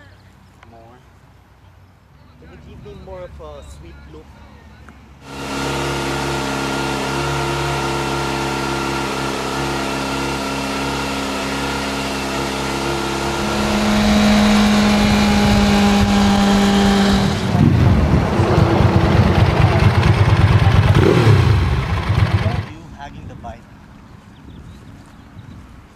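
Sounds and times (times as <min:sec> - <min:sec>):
drone of held tones: 0:05.2 - 0:19.7
motorcycle engine rumbling: 0:05.2 - 0:23.3.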